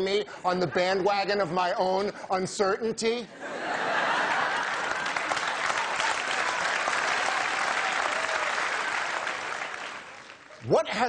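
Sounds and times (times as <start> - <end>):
audience applauding: 3.9 - 10.7.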